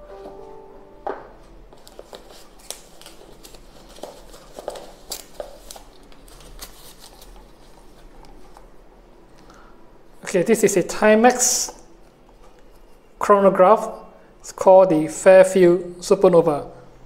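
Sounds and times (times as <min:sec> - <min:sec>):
packaging rustling: 0:01.7 - 0:08.8.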